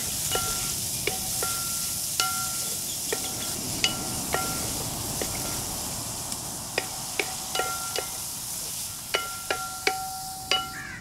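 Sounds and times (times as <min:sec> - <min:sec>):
shallots sizzling: 0:00.0 - 0:11.0
spatula knocking metal pan: 0:00.3 - 0:04.6, 0:06.8 - 0:08.2, 0:09.1 - 0:11.0.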